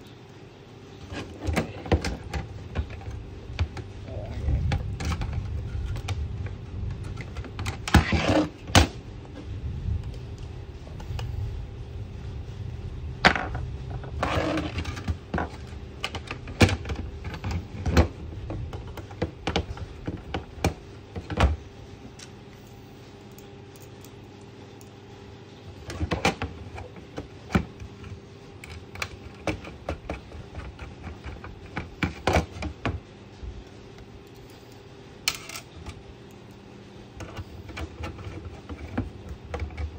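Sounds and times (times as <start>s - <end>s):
scrape: 14.1s - 15.1s.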